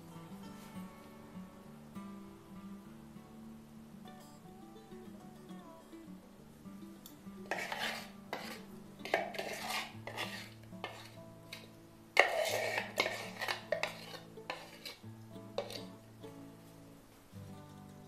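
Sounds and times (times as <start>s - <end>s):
spoon scraping plastic bowl: 7.5s - 15.0s, 15.6s - 16.0s.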